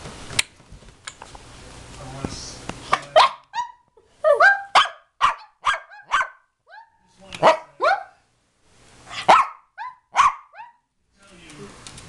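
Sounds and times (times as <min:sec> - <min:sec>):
small dog barking and yipping: 0:03.1 - 0:08.2, 0:09.1 - 0:10.9.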